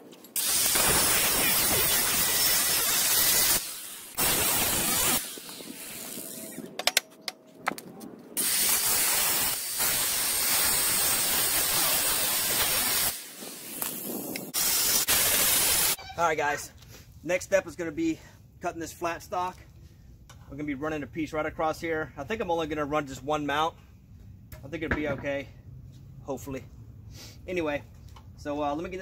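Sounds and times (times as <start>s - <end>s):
angle grinder cutting metal: 0.4s - 6.6s, 8.4s - 13.9s.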